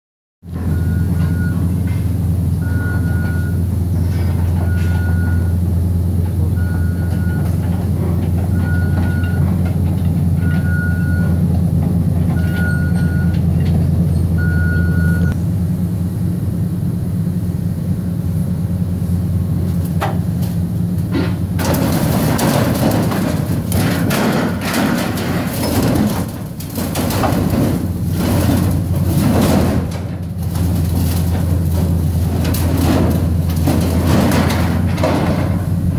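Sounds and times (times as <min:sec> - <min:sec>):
excavator engine running: 0:00.4 - 0:35.9
backup alarm beeping: 0:00.6 - 0:01.7, 0:02.6 - 0:03.7, 0:04.6 - 0:05.7, 0:06.5 - 0:07.6, 0:08.5 - 0:09.5, 0:10.4 - 0:11.4, 0:12.4 - 0:13.5, 0:14.4 - 0:15.4
metal pipes clattering: 0:21.1 - 0:35.9.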